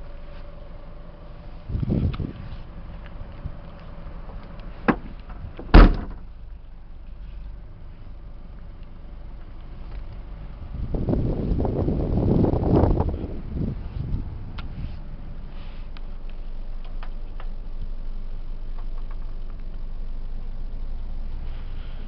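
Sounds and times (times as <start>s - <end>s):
car door shutting with thump: 4.8s - 6.3s.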